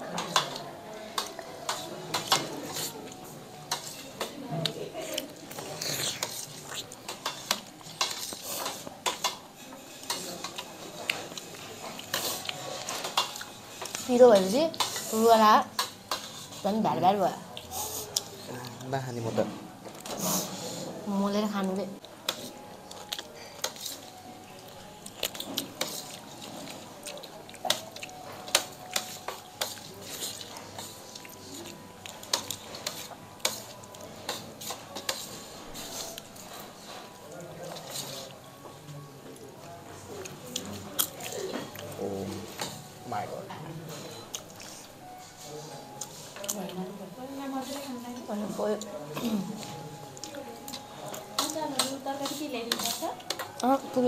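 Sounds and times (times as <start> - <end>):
spoon clinking on metal plates: 7.1 - 15.2, 15.8 - 16.6, 51.1 - 53.7.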